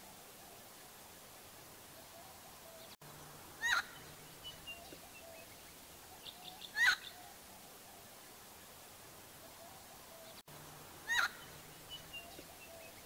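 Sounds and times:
bird loud short calls: 3.6s - 4.1s, 11.0s - 12.8s.

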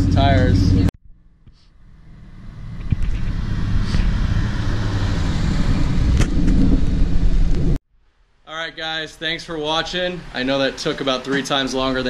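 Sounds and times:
car engine driving past: 1.7s - 7.8s.

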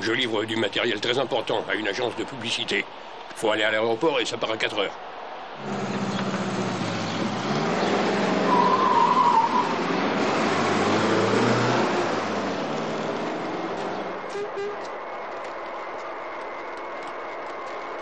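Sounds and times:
car engine accelerating: 5.6s - 14.3s
tyre squeal: 7.8s - 9.8s, 14.2s - 15.0s.

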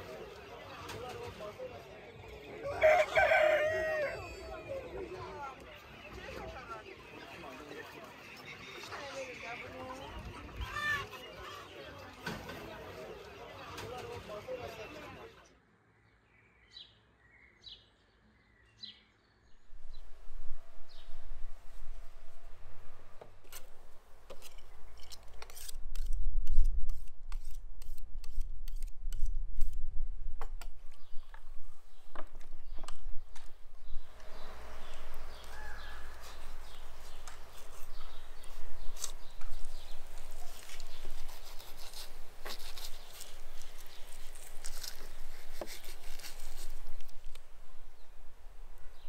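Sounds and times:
knife scraping on sharpening steel: 24.3s - 26.2s.

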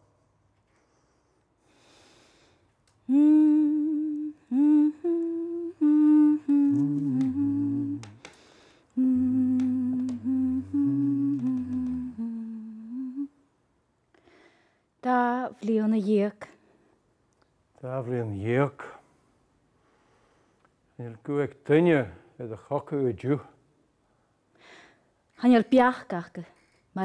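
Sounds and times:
lower voice humming harmony: 3.0s - 8.3s, 9.0s - 13.4s
person humming a tune: 3.0s - 8.3s, 9.0s - 13.4s.

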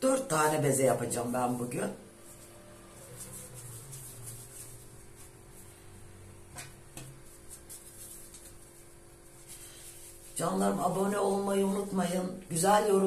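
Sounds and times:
steady low hum: 0.0s - 13.0s
hands handling bread dough: 3.1s - 10.4s.

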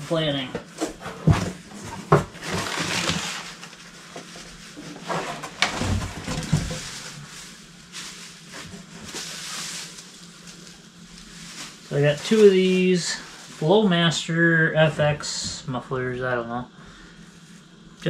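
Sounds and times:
packing materials rustling: 1.6s - 13.9s.

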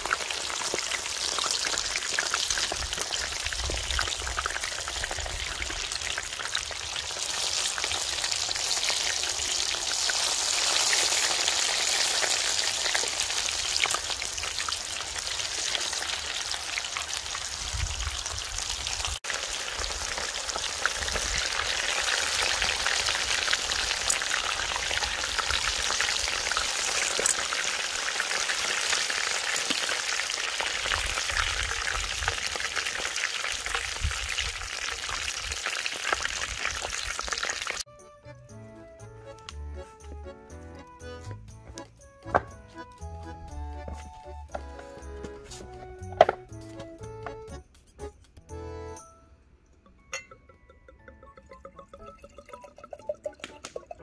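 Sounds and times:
deep-frying sizzle in oil: 0.0s - 37.9s.

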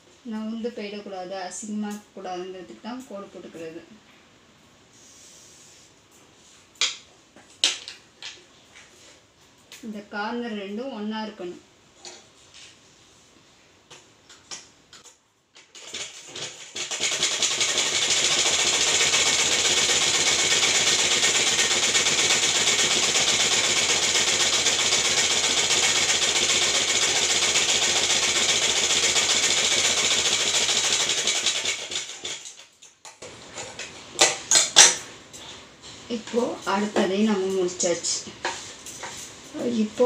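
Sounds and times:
sewing machine stitching: 15.6s - 32.7s.

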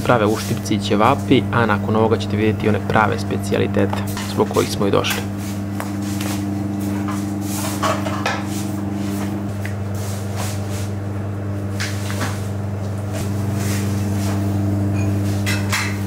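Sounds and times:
low hum of kitchen equipment: 0.0s - 16.0s.

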